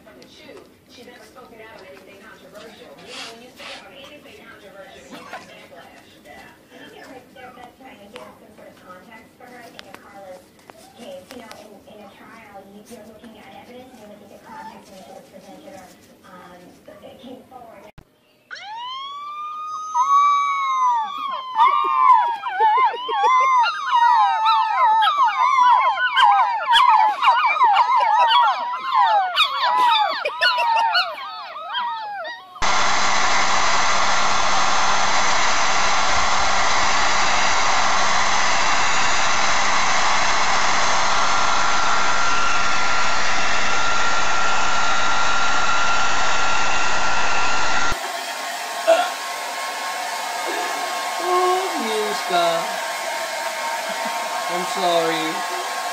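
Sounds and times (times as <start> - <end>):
puppy cries: 18.5 - 32.6
puppies howling: 18.5 - 32.7
steady blowing noise with low hum: 32.6 - 48.0
hair dryer blowing: 32.6 - 55.9.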